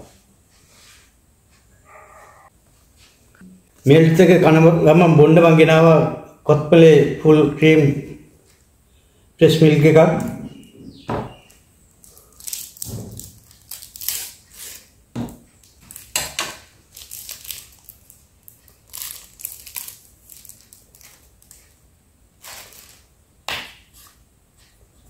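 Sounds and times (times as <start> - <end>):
plastic wrapper crinkling and tearing: 12.0 - 14.9, 15.6 - 21.8, 22.4 - 23.1.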